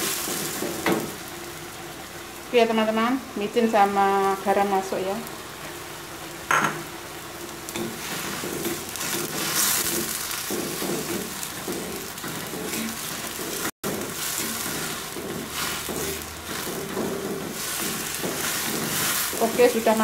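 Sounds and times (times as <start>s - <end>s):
cucumber sizzling in a wok: 0.0s - 20.0s
wooden spatula scraping a pan: 7.7s - 20.0s.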